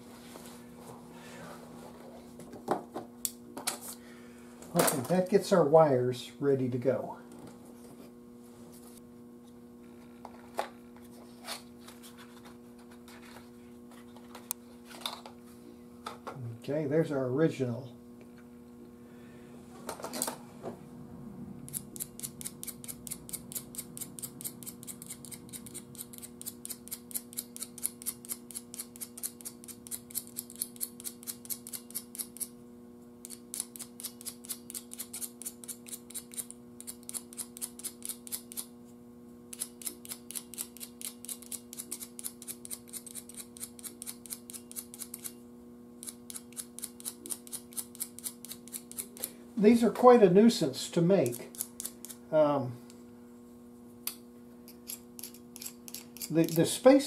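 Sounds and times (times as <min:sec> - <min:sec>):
knife blade scraping metal pins: 0:21.7 - 0:32.5, 0:33.2 - 0:38.7, 0:39.6 - 0:45.4, 0:46.0 - 0:49.3, 0:54.7 - 0:56.8.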